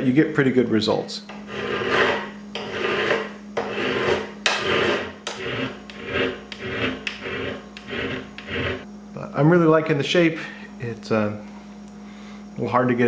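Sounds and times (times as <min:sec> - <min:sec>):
hand file rasping on metal: 0:01.3 - 0:08.8.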